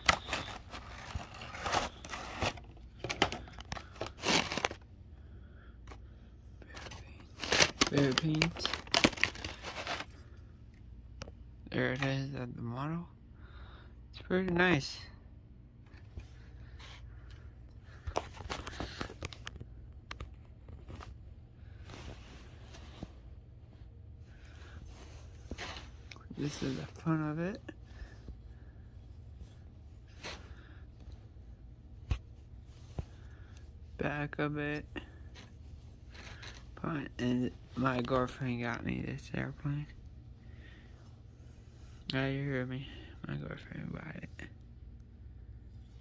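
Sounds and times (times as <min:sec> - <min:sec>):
plastic packaging crinkling: 0:00.0 - 0:04.8, 0:06.6 - 0:10.3
rustling on bedsheet: 0:20.8 - 0:27.1.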